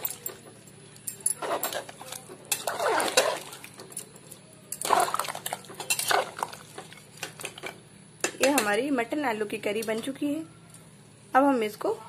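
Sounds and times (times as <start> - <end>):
metal ladle scraping a pot: 1.4 - 3.6.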